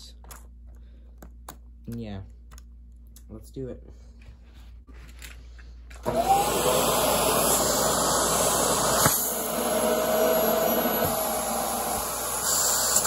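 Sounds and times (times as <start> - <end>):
vacuum cleaner running: 6.0 - 13.0.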